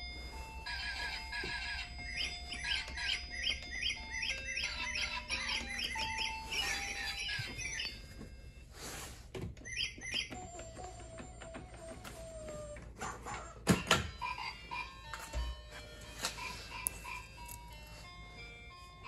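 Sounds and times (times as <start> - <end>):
chirpy electronic music: 0.1 - 8.2, 9.7 - 19.0.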